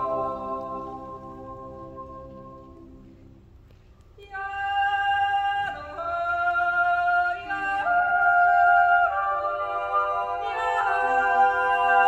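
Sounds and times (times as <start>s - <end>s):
choir holding a chord: 0.0s - 3.1s, 7.4s - 12.0s.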